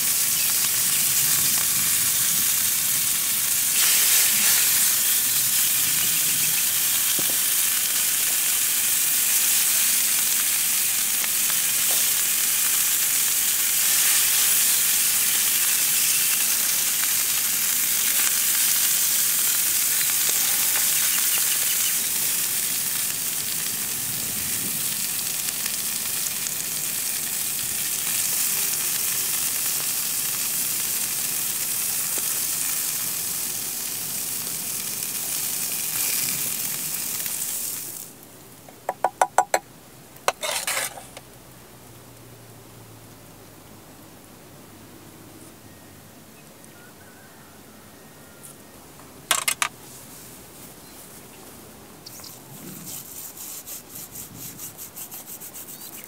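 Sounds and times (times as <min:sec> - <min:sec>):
meat sizzling: 0:00.0 - 0:38.2, 0:40.3 - 0:41.5.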